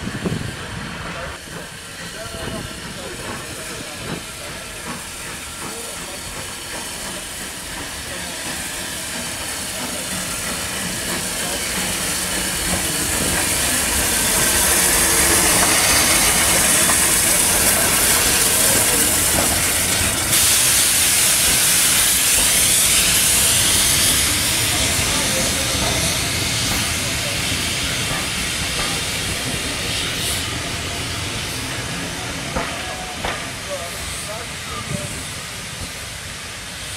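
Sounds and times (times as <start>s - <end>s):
steam locomotive passing: 0.0s - 36.9s
hiss of escaping steam: 0.1s - 36.9s.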